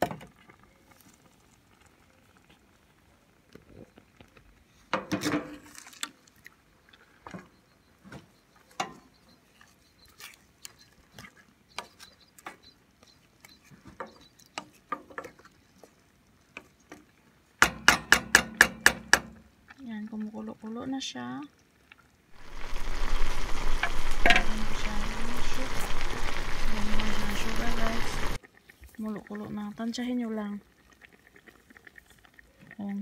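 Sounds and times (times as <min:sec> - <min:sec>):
spoon knocking and scraping pot: 0:08.7 - 0:09.4, 0:10.1 - 0:15.6, 0:17.6 - 0:19.4, 0:24.2 - 0:24.5.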